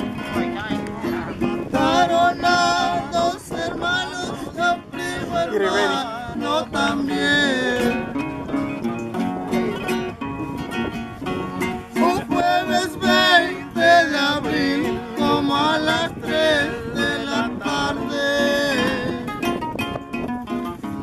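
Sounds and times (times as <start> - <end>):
acoustic guitars playing: 0.0 - 21.0
man singing: 1.0 - 8.2, 11.9 - 19.5.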